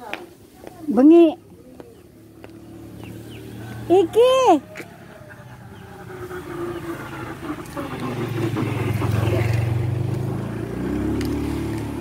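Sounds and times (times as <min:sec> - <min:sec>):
motorcycle engine passing by: 0:01.3 - 0:12.0.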